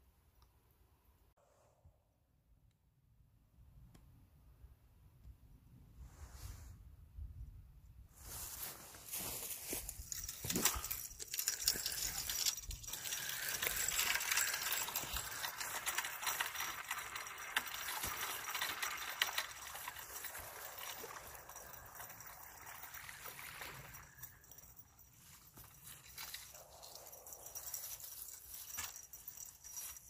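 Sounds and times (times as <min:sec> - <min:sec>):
fishing tackle clicks and rattles: 0:09.6 - 0:30.0.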